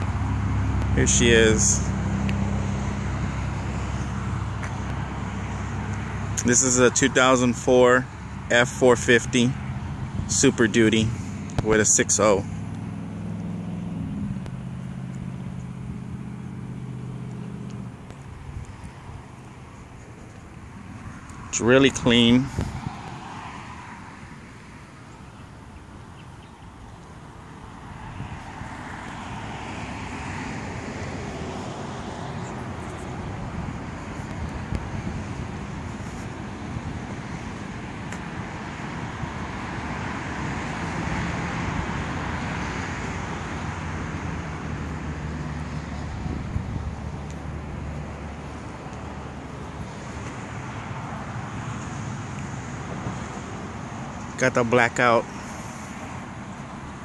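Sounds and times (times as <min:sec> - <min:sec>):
road traffic noise: 0:00.0 - 0:57.0
wind blowing across microphone: 0:20.9 - 0:23.5, 0:27.9 - 0:28.8, 0:32.2 - 0:38.4, 0:46.0 - 0:47.1.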